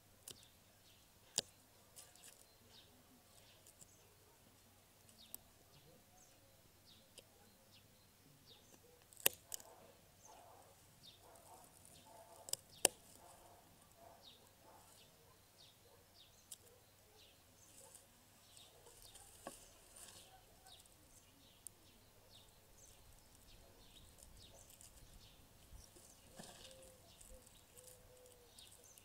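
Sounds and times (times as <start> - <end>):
faint bird chirps: 0.2 - 29.0.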